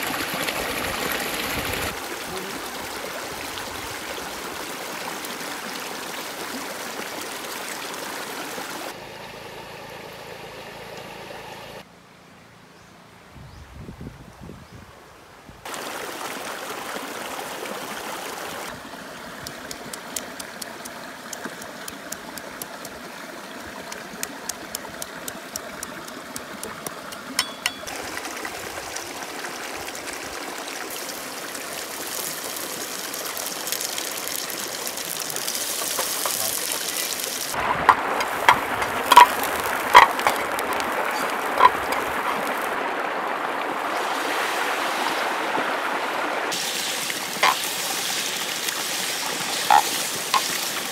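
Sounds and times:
stream running over rocks: 0.0 - 9.0, 15.6 - 50.9
metal spatula clanking on pan: 27.4 - 27.9.

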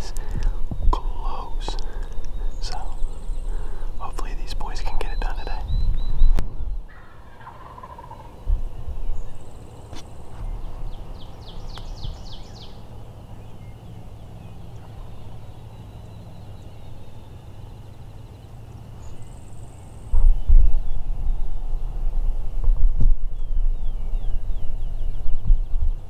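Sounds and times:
turkey gobbling: 6.9 - 8.3.

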